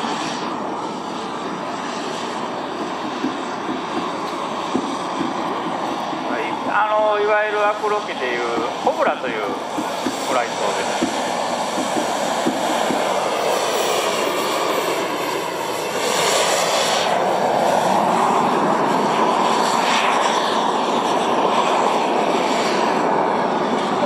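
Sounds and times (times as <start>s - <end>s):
model jet turbine whine: 0.0s - 24.0s.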